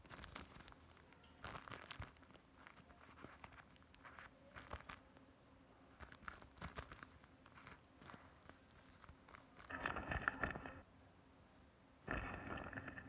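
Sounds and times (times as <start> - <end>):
plastic and paper crinkling: 0.0 - 5.2, 5.9 - 10.8.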